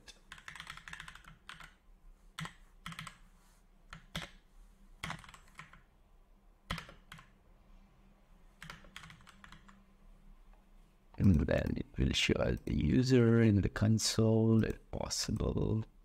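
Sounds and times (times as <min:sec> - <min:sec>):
computer keyboard typing: 0:00.3 - 0:01.8, 0:02.4 - 0:03.2, 0:03.9 - 0:04.4, 0:05.0 - 0:05.9, 0:06.7 - 0:07.4, 0:08.6 - 0:09.8.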